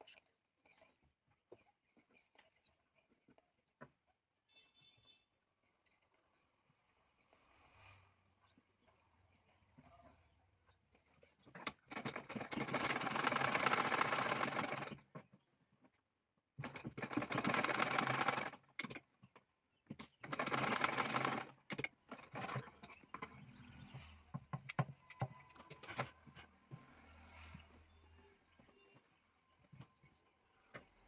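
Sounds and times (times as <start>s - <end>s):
sewing machine stitching: 11.5s - 15.2s, 16.6s - 19.0s, 20.0s - 23.3s.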